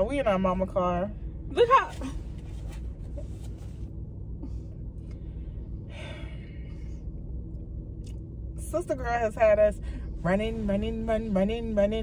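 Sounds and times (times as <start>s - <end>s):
breathy exhale: 5.1s - 7.0s.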